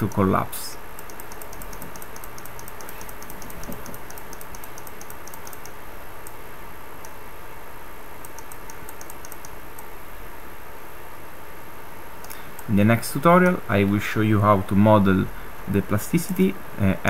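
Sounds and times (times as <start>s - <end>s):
computer clicks: 1.0s - 6.4s, 8.2s - 9.9s.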